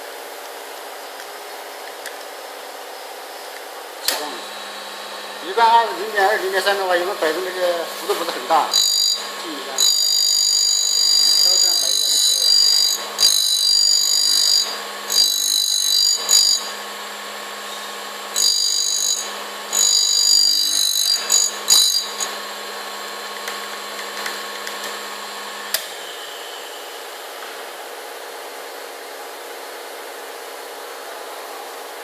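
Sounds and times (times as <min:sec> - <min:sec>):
faint machine running: 0:00.0 - 0:32.0
click: 0:04.0 - 0:04.2
grinder wheel screeching: 0:04.2 - 0:16.9, 0:17.6 - 0:22.4.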